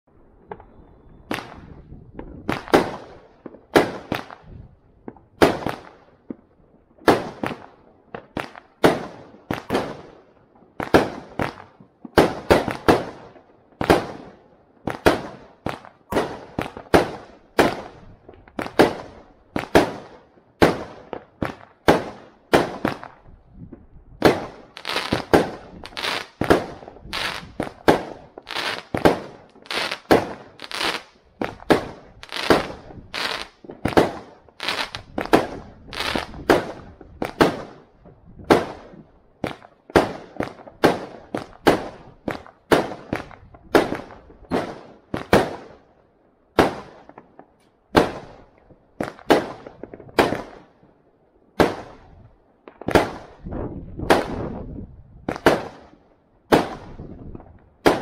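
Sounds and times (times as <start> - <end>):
fireworks bangs with echo: 24.2 - 45.8, 51.6 - 55.9, 56.5 - 58.0.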